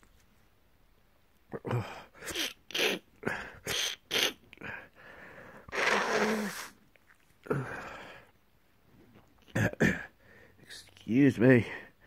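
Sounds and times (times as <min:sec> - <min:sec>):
person sneezing: 0:01.8 - 0:03.0, 0:03.6 - 0:04.4, 0:05.7 - 0:06.8.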